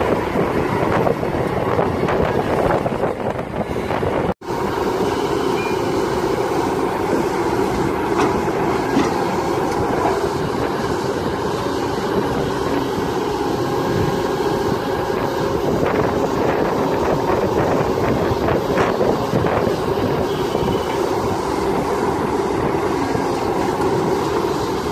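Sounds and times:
excavator engine and hydraulics droning: 0.0 - 24.9.

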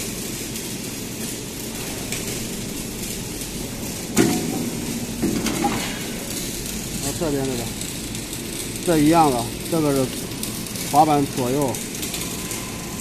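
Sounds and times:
welding machine noise: 0.0 - 13.0
mechanical clunk and whir: 3.9 - 6.3.

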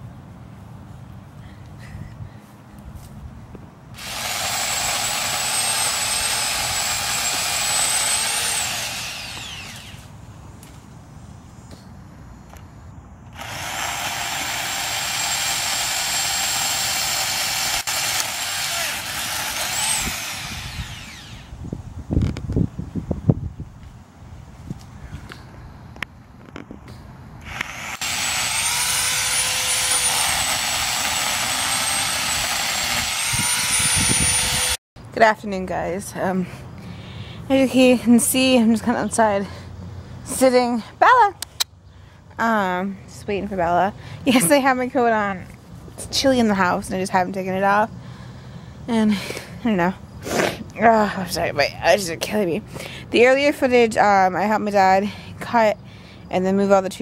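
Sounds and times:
electric chainsaw whining: 4.0 - 10.1, 13.3 - 21.6, 27.4 - 34.8.

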